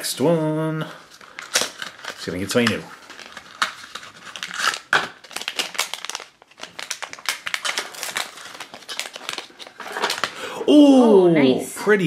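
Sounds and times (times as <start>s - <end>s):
cardboard packaging crinkling: 1.0s - 10.4s.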